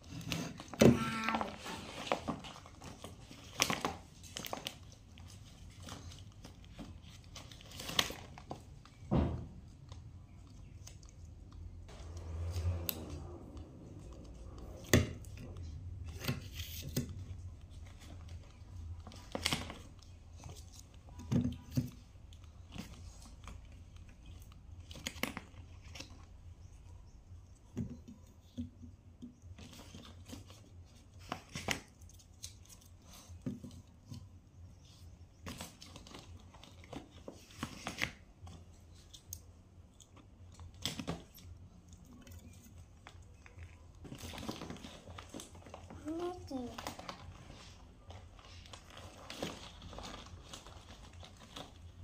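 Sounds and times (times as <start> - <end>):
plastic packaging crinkling: 38.9 - 52.0.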